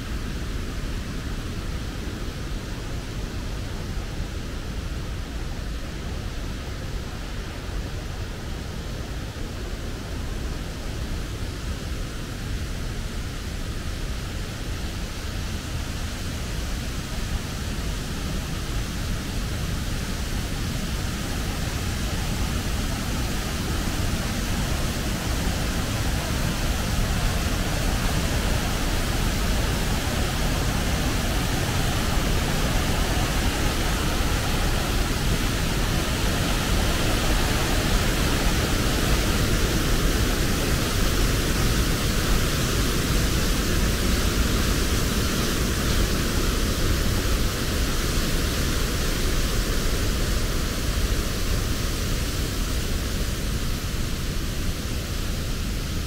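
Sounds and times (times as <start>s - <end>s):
waterfall rushing over rocks: 0.0s - 56.0s.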